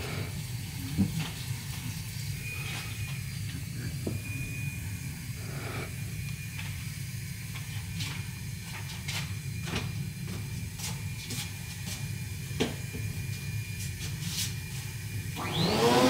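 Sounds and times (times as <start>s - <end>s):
low hum: 0.0s - 13.6s.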